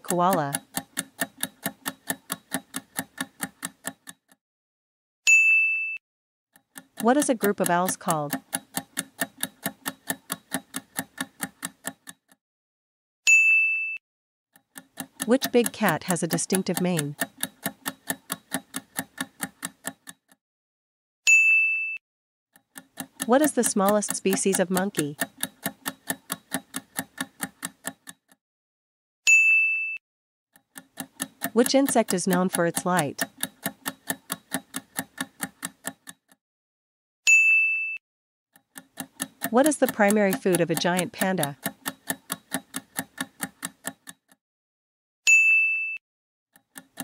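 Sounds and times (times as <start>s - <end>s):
fast timer ticking: 0.0s - 4.4s, 6.6s - 12.4s, 14.6s - 20.4s, 22.6s - 28.4s, 30.6s - 36.4s, 38.6s - 44.4s, 46.6s - 47.0s.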